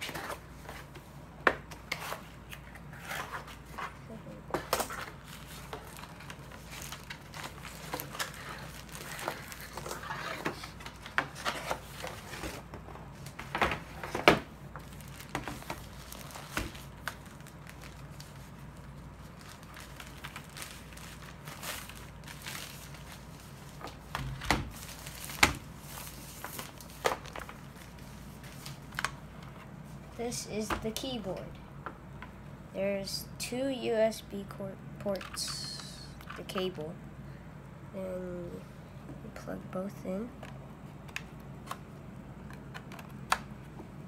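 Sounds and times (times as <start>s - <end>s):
cardboard packaging rustling: 1.8s - 29.7s
plastic bag crinkling: 4.9s - 11.2s, 14.8s - 24.1s, 24.7s - 29.1s.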